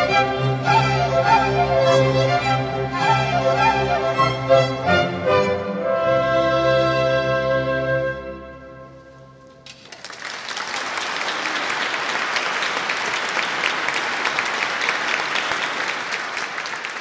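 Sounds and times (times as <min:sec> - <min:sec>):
audience applause: 0:09.6 - 0:17.0.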